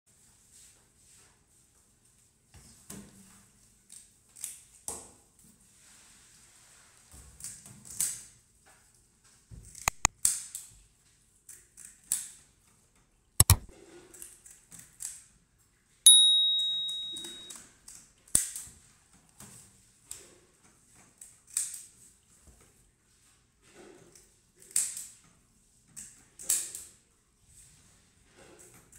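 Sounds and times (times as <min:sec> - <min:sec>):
sharp click: 0:09.9 - 0:10.1, 0:13.4 - 0:13.7, 0:16.6 - 0:17.5
bell ding: 0:16.1 - 0:17.5.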